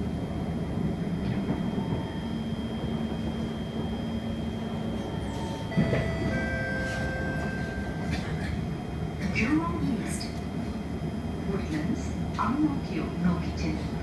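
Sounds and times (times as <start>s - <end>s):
train wheels and motors rumbling: 0.0s - 14.0s
faint high steady tone: 5.0s - 8.2s
thin high tones: 5.5s - 8.2s.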